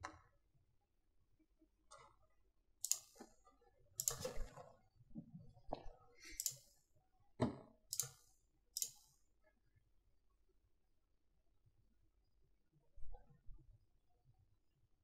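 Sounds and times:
mouse buttons clicking: 2.8s - 3.2s, 4.0s - 4.2s, 8.8s - 9.0s.

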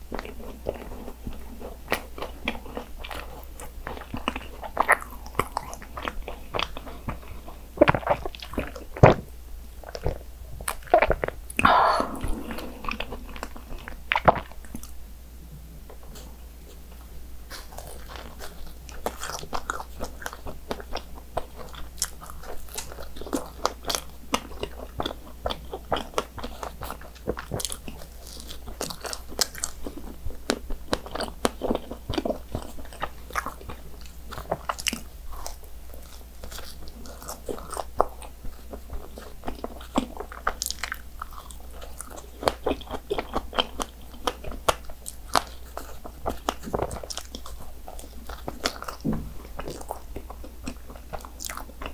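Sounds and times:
chewing soft food: 0.0s - 51.9s
mouth clicks: 11.5s - 14.4s.

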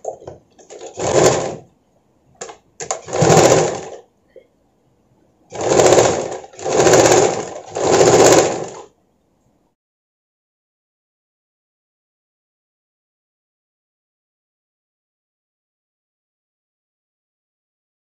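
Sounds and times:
electric sewing machine stitching: 0.6s - 1.7s, 2.8s - 4.0s, 5.5s - 8.9s.

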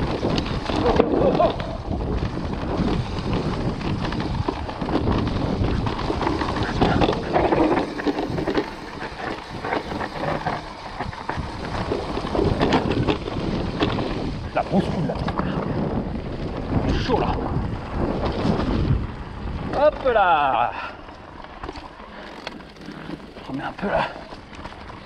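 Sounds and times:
wind on microphone: 0.0s - 20.0s
bike knocking and rattling: 0.0s - 25.0s
tyres rolling over dirt and stones: 0.0s - 25.0s.

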